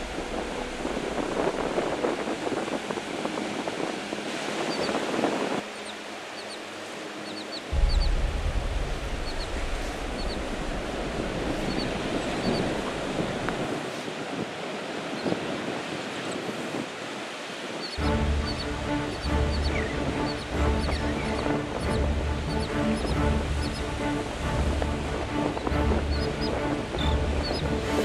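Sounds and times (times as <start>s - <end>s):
wind on the microphone: 0.0s - 6.0s, 7.7s - 28.0s
ocean surf: 0.0s - 28.0s
seabird calls: 5.6s - 8.1s, 9.1s - 10.5s, 11.4s - 13.6s, 17.8s - 28.0s.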